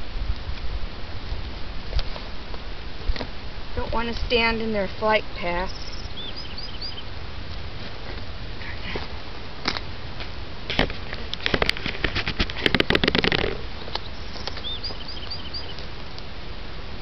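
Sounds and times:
small bird chirping: 5.3 - 7.1, 13.7 - 15.9
rustling and clicking handling: 7.8 - 14.7.

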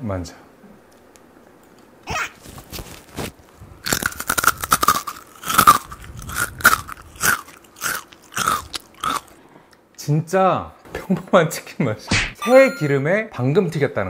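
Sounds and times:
crunchy fried chicken chewing: 2.4 - 9.4.

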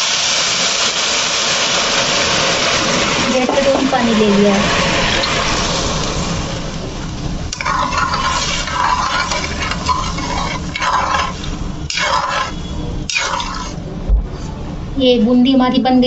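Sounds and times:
water pouring: 0.0 - 13.8
metal ladle scraping a pan: 7.5 - 13.8.

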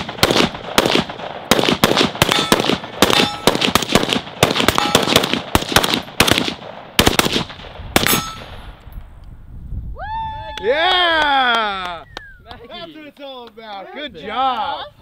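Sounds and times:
rapid gunshots: 0.0 - 8.4.

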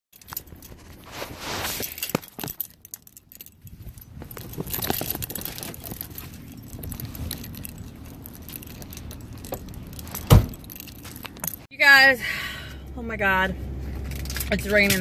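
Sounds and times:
rustling and jingling: 0.1 - 11.7.

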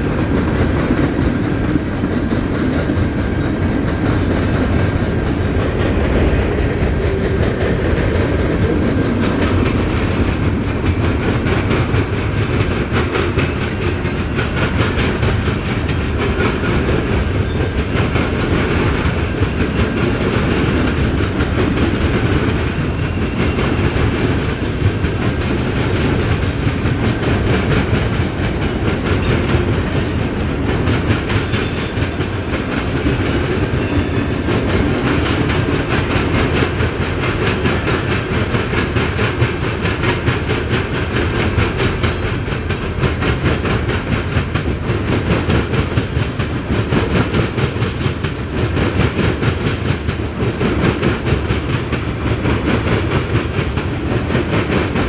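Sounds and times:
faint high wheel squeal: 0.0 - 1.3, 3.5 - 5.3, 29.2 - 30.5, 31.3 - 34.7
freight train wheels rumbling: 0.0 - 55.0.

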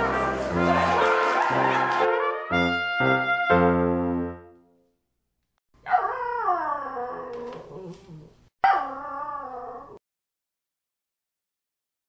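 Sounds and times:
dog howling whine yawn: 5.9 - 10.0.

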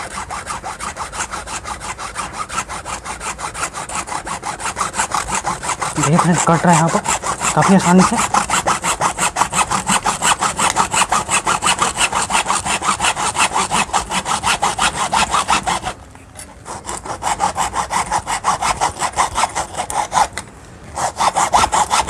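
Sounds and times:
hacksaw cutting plastic: 0.0 - 22.0.

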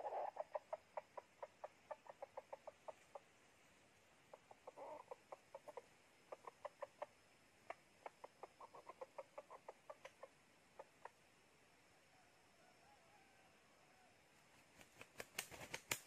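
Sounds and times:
chicken clucking: 0.0 - 11.3.

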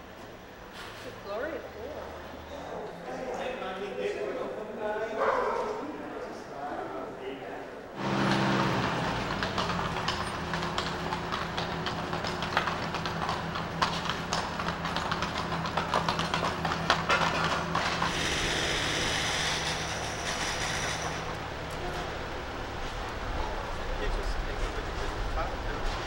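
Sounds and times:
hooves clip-clopping on cobblestones: 8.0 - 26.0
steady low hum: 8.0 - 26.0.

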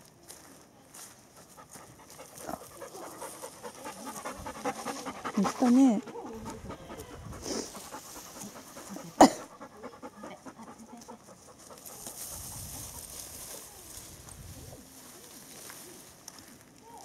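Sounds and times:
dog panting: 1.4 - 13.2.

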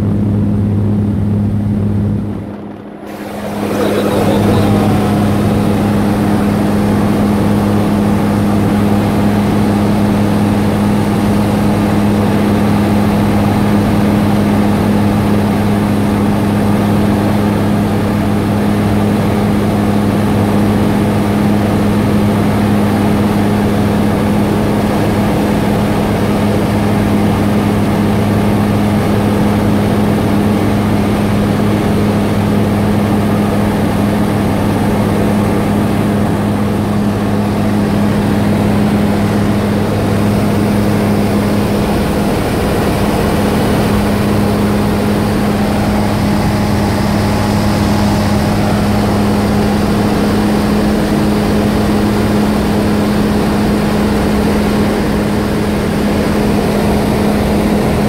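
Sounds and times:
light aircraft engine droning: 0.0 - 58.0.

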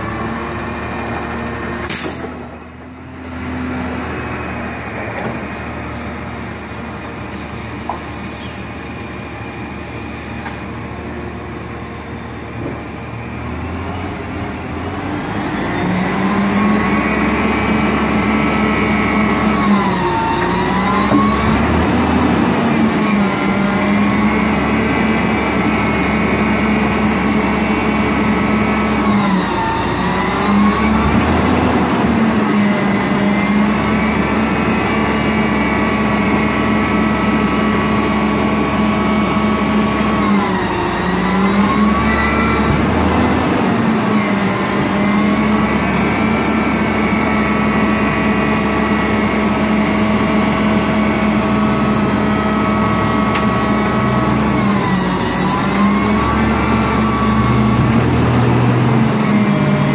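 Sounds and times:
garbage truck engine and hydraulics: 0.0 - 59.9.

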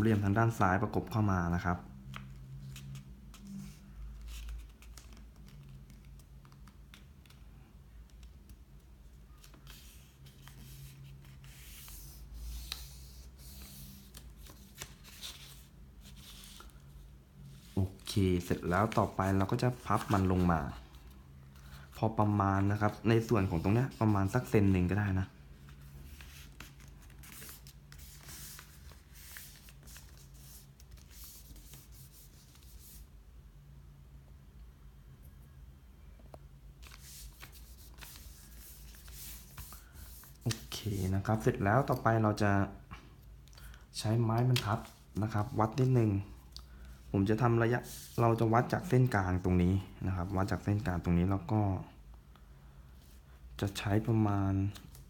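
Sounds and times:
paper rustling and creasing: 2.1 - 7.4, 8.1 - 33.0, 36.8 - 42.0, 43.5 - 49.2
paper crinkles: 25.6 - 32.8, 36.8 - 40.8.

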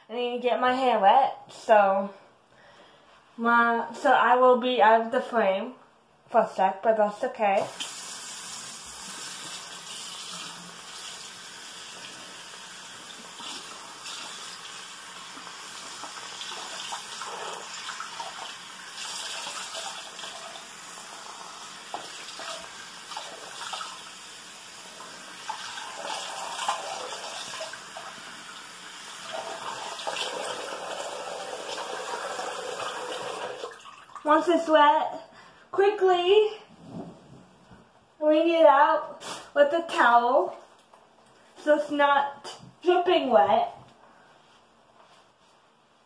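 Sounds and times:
tap water running and splashing: 7.6 - 34.3.

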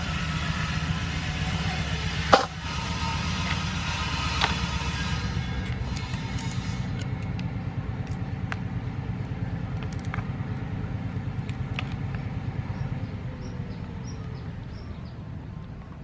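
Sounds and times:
steady low rumble: 0.0 - 16.0
crab shells clicking: 9.7 - 10.3.

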